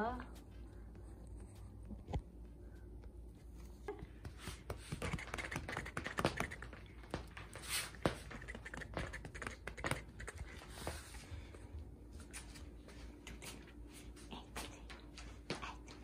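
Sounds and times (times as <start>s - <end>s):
cat claws scratching rug: 3.1s - 15.9s.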